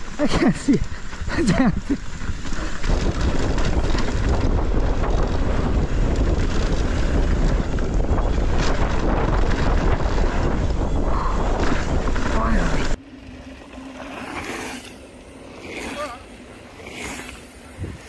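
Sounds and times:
wind buffeting microphone: 0.0s - 13.0s, 17.6s - 18.0s
bike rattling clicks and knocks: 0.0s - 13.8s.

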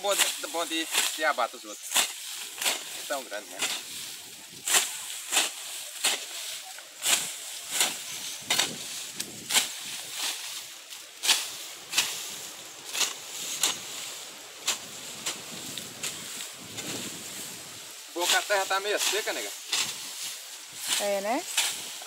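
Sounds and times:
hoe chopping and scraping soil: 0.0s - 3.9s, 4.6s - 6.4s, 7.0s - 10.6s, 11.2s - 12.3s, 12.9s - 14.0s, 20.9s - 22.0s
grass rustling: 0.0s - 22.0s.

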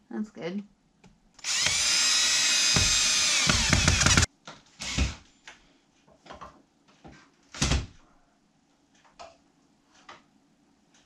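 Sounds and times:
cordless drill whining: 1.4s - 5.2s.

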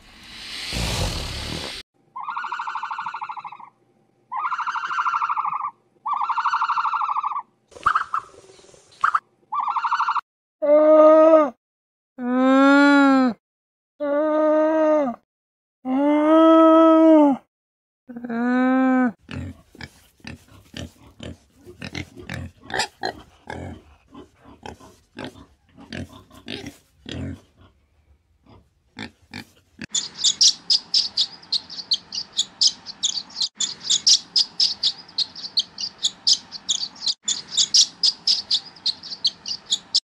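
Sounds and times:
pitched animal call: 0.7s - 8.2s, 9.0s - 11.5s
warthog grunting: 19.3s - 27.8s
swallows twittering: 29.9s - 40.0s.

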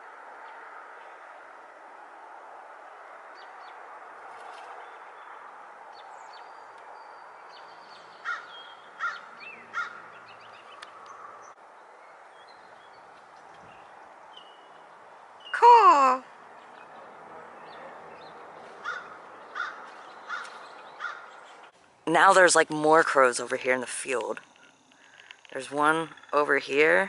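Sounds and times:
small birds chirping: 3.4s - 21.8s
crow cawing: 8.2s - 10.3s, 18.8s - 21.4s.

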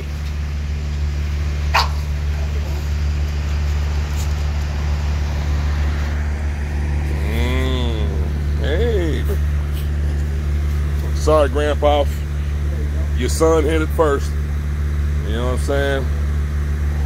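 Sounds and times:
low hum: 0.0s - 17.0s
dog barking: 1.7s - 2.1s.

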